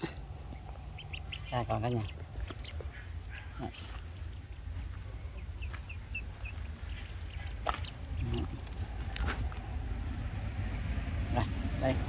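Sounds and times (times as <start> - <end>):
low rumble: 0.0 - 12.0
duckling peeping: 0.3 - 9.7.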